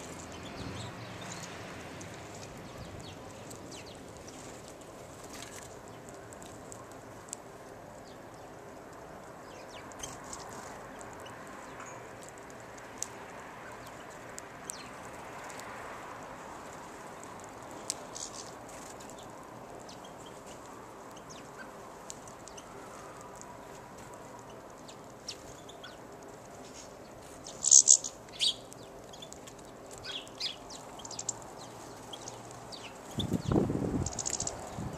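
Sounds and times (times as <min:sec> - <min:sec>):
sharp clicks: 0:34.0 - 0:34.7.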